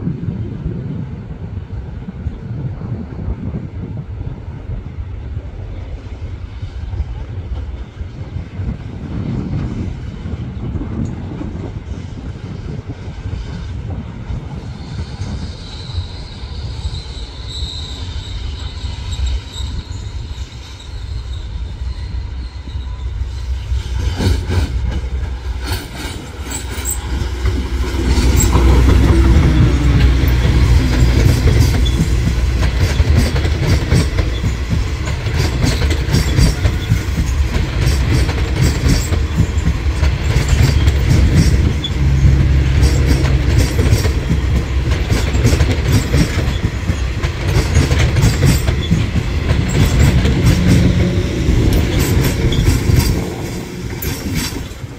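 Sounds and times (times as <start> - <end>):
train passing: 0.0 - 54.9
train wheel squeal: 5.7 - 54.9
wheels clicking over rail joints: 24.1 - 54.9.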